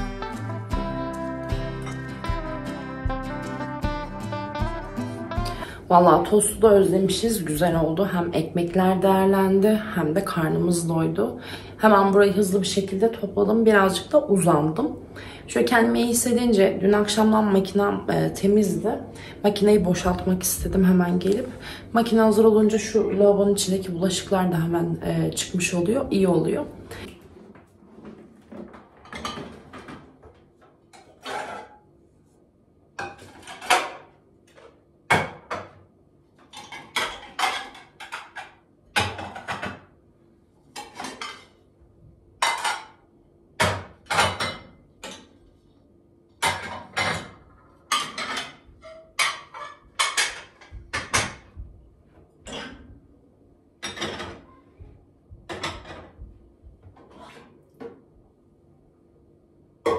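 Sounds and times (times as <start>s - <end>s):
plates and pans clinking: 42.4s - 43.0s, 46.4s - 51.3s.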